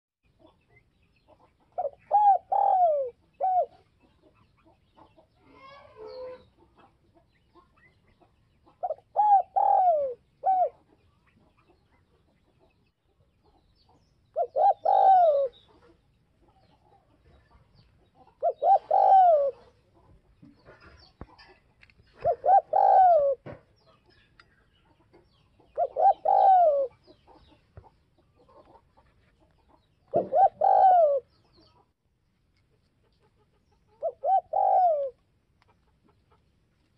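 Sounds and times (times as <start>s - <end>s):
dove cooing: 1.7s - 3.9s, 8.7s - 11.0s, 14.3s - 16.0s, 18.3s - 19.9s, 22.1s - 23.6s, 25.7s - 27.2s, 30.1s - 31.5s, 33.9s - 35.2s.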